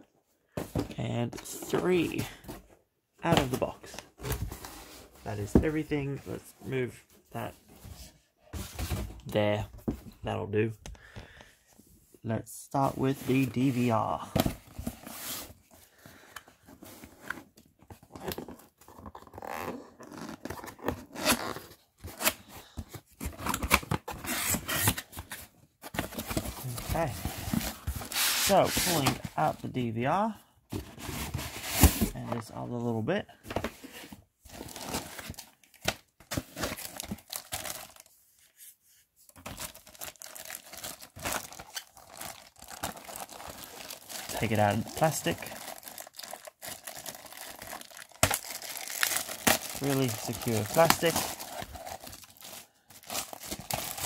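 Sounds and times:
cardboard scraping and rustling: 0:23.0 - 0:29.4, 0:30.7 - 0:32.4
plastic wrapping crinkling: 0:39.5 - 0:54.0.

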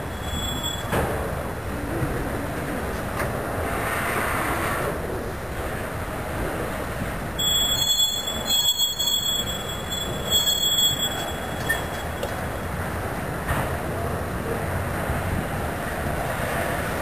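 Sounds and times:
wheels squealing: 0:00.0 - 0:01.5, 0:07.4 - 0:13.4
train wheels rumbling on rails: 0:00.0 - 0:17.0.

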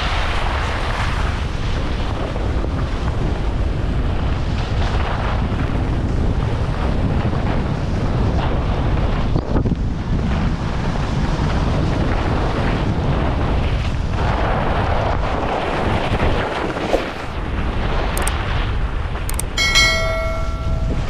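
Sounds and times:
short ringing tone: 0:19.3 - 0:21.0.

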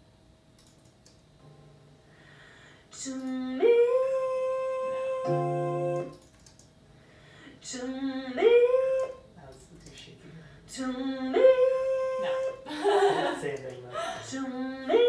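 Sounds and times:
woman singing: 0:02.9 - 0:06.2, 0:07.6 - 0:09.3, 0:10.7 - 0:12.7, 0:14.2 - 0:15.0.

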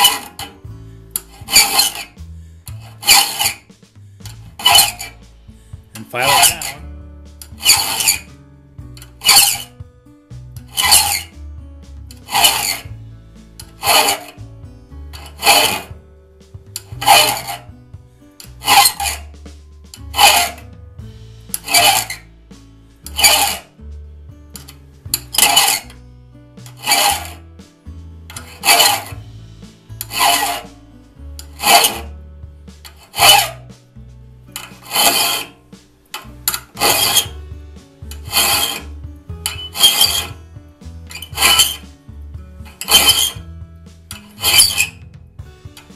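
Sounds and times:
file rasping on saw tooth: 0:00.0 - 0:05.2, 0:05.9 - 0:08.3, 0:09.0 - 0:09.8, 0:10.7 - 0:11.3, 0:12.2 - 0:12.9, 0:13.6 - 0:14.4, 0:15.2 - 0:16.0, 0:16.7 - 0:17.7, 0:18.4 - 0:19.3, 0:19.9 - 0:20.7, 0:21.5 - 0:22.3, 0:23.1 - 0:23.7, 0:24.6 - 0:25.9, 0:26.7 - 0:27.4, 0:28.3 - 0:29.2, 0:30.0 - 0:30.8, 0:31.4 - 0:32.2, 0:32.9 - 0:33.7, 0:34.6 - 0:35.6, 0:36.2 - 0:37.4, 0:38.0 - 0:40.4, 0:41.1 - 0:41.9, 0:42.7 - 0:43.4, 0:44.1 - 0:45.1.

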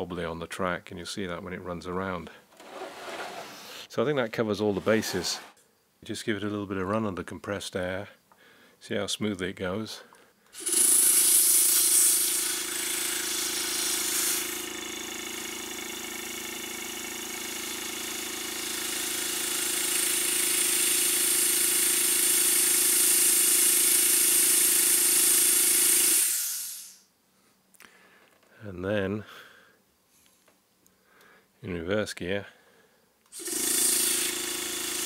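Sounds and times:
air hissing through cylinders: 0:26.2 - 0:27.1.

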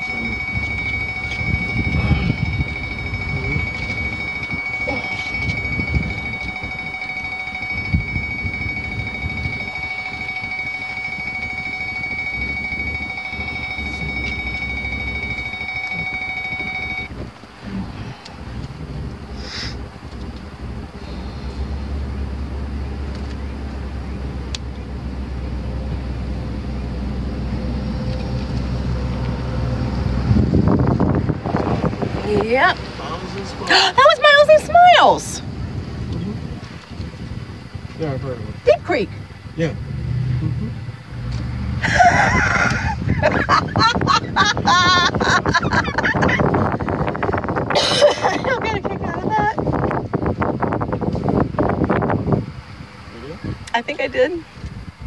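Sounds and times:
steady high-pitched tone: 0:00.0 - 0:17.2, 0:33.4 - 0:35.5
vehicle engine and road rumble: 0:00.0 - 0:55.0.

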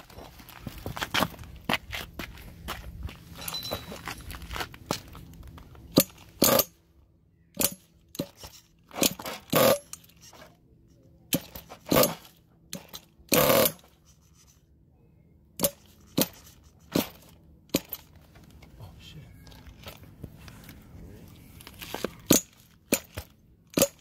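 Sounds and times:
small engine turning over: 0:05.9 - 0:06.8, 0:07.6 - 0:10.4, 0:11.4 - 0:14.0.

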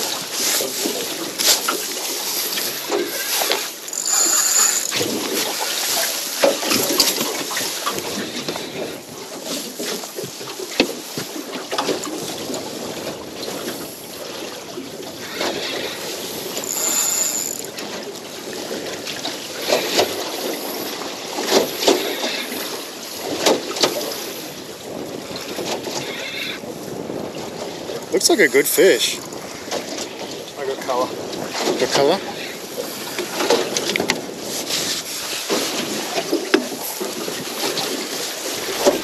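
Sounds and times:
sharp knocks and splashes: 0:00.0 - 0:08.2, 0:09.3 - 0:12.7, 0:23.3 - 0:24.0, 0:31.3 - 0:31.9, 0:33.1 - 0:39.0
water slapping against boat hull: 0:00.0 - 0:15.6, 0:17.6 - 0:24.2, 0:26.9 - 0:32.1, 0:32.8 - 0:39.0
wind on microphone: 0:11.1 - 0:39.0.

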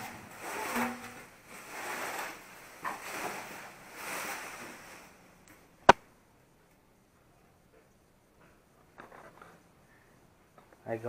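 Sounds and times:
plastic packing rustling: 0:00.0 - 0:05.4.

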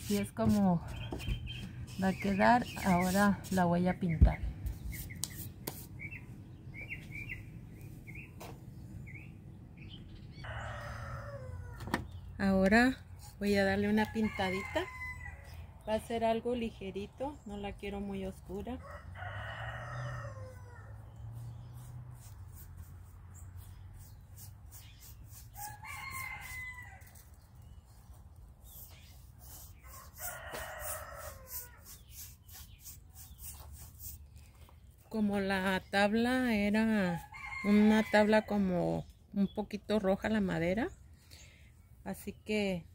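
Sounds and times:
bird chirping: 0:00.8 - 0:03.3, 0:04.0 - 0:12.4
rooster crowing: 0:10.4 - 0:11.8, 0:14.2 - 0:15.5, 0:18.8 - 0:21.0, 0:25.6 - 0:27.2, 0:29.8 - 0:31.8.

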